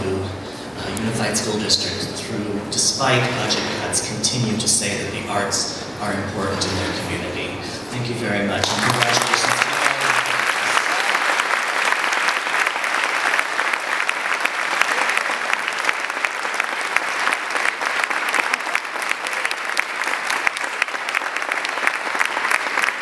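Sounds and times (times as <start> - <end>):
audience applauding: 8.6 - 23.0.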